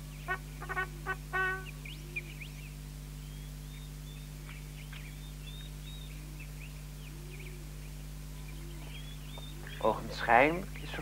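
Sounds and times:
small birds chirping: 0.0 - 11.0
steady low hum: 0.0 - 11.0
brass chord: 0.3 - 1.7.

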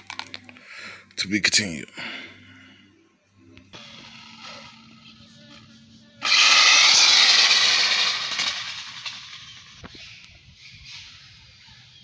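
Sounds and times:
electric motor whine: 3.8 - 9.8.

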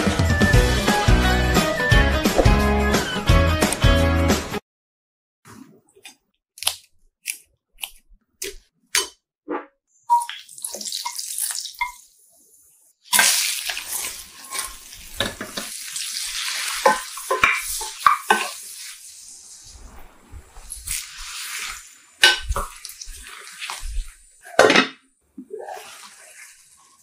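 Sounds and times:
shrimp sizzling in frying pan: 13.1 - 19.7, 20.6 - 24.1
stirring knocks and scrapes on pan: 13.8 - 15.7, 16.5 - 18.6, 20.8 - 24.8.

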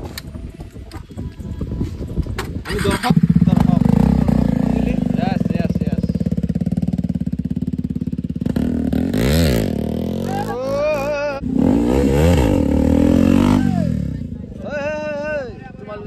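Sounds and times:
motorcycle engine idling and revving: 0.0 - 16.0
person shouting: 10.2 - 11.4, 13.4 - 14.0.

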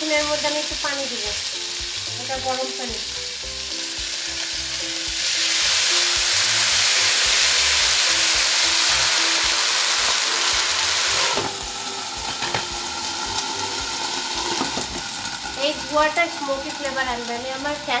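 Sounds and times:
water hissing in hot pan: 0.0 - 18.0
glass lid placed on pan: 12.3 - 12.7.

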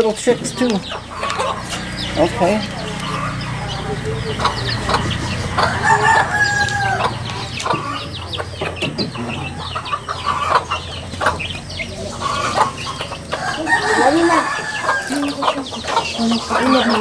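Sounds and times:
chicks peeping: 0.0 - 17.0
hen clucking: 0.0 - 17.0
rooster crowing: 1.2 - 8.1, 12.2 - 15.5.

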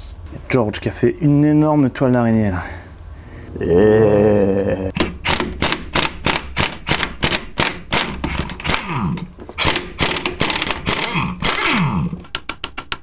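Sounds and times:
sharp ratchet clicks: 5.0 - 8.9, 9.6 - 13.0
pneumatic impact wrench hammering: 5.0 - 13.0.

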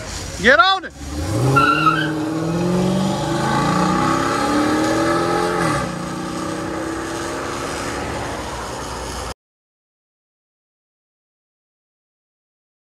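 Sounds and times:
car engine accelerating hard: 0.1 - 9.3.

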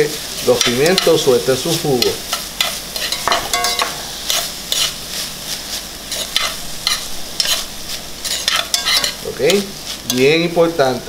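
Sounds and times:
vegetables sizzling in oil: 0.0 - 11.0
metal spoon scraping pan: 2.0 - 5.0, 6.1 - 10.2.

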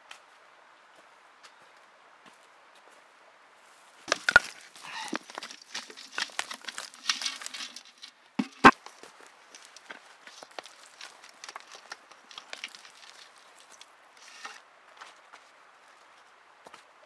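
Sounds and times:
soil pattering and rustling: 3.6 - 17.0.

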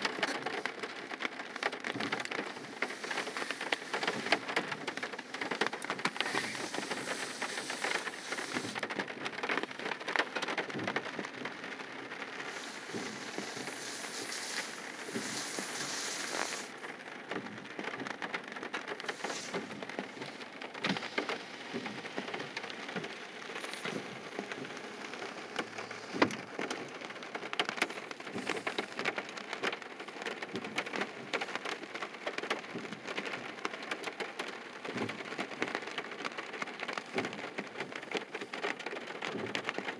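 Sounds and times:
rain pattering on a car roof: 0.0 - 39.9
higher hiss: 2.6 - 5.3, 6.0 - 8.8, 12.4 - 16.7, 19.0 - 20.4.

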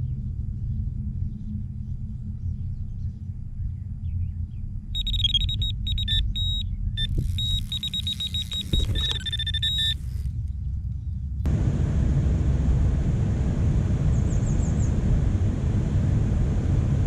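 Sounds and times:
low rumble: 0.0 - 17.0
bite alarm high beeps: 5.0 - 10.3.

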